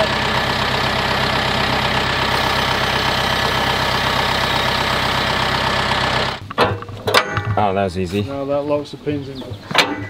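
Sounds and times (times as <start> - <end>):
tractor diesel engine idling: 0.0 - 6.5.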